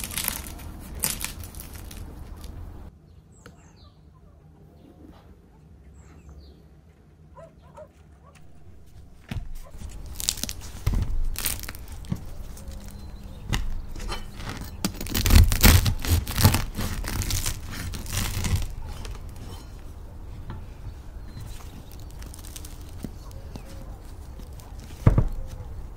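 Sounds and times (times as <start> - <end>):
bread knife sawing crust: 9.6 - 20.0.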